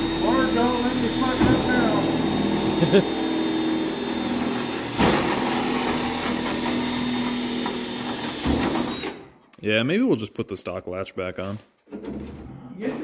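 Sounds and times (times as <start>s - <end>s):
cordless drill whining: 0.0s - 9.3s.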